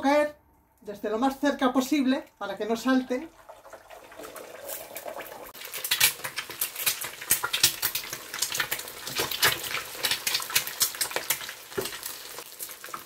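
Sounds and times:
eggs sizzling in oil: 3.2 - 13.0
oil crackling and popping: 3.5 - 13.0.

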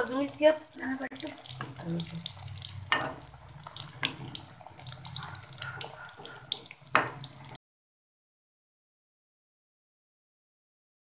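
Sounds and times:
food sizzling in hot oil: 0.0 - 7.6
skimmer scraping a pan: 0.1 - 7.6.

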